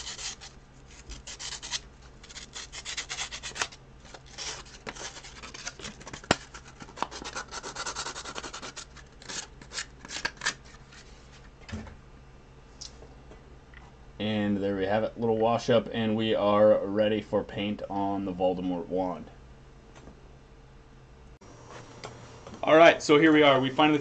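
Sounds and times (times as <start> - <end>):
sandpaper rubbing: 0.0 - 11.2.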